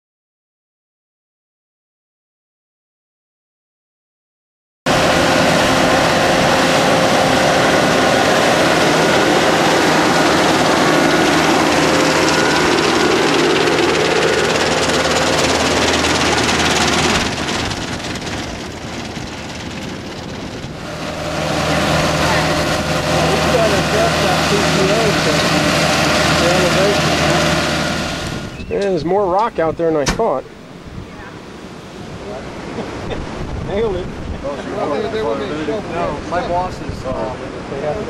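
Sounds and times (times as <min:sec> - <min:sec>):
beach cleaner machine raking sand: 0:04.9 - 0:29.8
tractor engine hum: 0:04.9 - 0:33.1.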